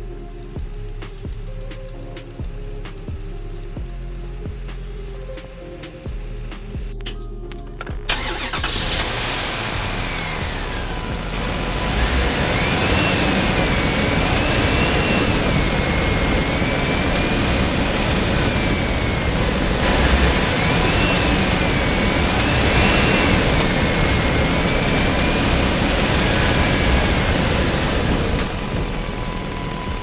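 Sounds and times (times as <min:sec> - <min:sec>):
gears and wheels rattling: 0:07.8 - 0:30.0
electric motor whining: 0:08.2 - 0:30.0.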